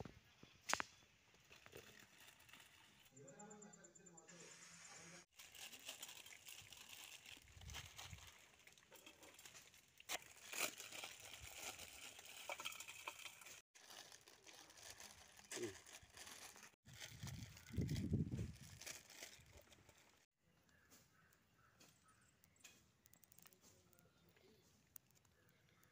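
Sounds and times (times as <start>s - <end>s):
plastic packets torn and crinkled: 1.4s - 3.1s, 5.3s - 20.3s
sharp clicks: 21.8s - 25.9s.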